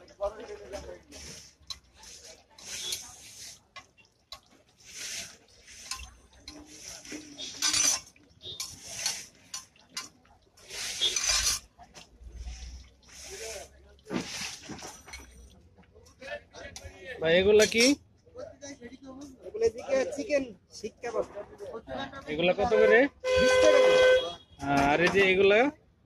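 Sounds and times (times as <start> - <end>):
rolls sizzling in oil on griddle: 0.7 - 14.7
metal tongs scraping griddle: 1.1 - 3.9, 4.8 - 13.5.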